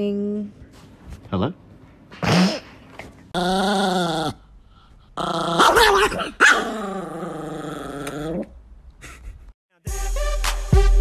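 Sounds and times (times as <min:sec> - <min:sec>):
small dog growling: 0:03.4 - 0:04.5, 0:05.2 - 0:08.6.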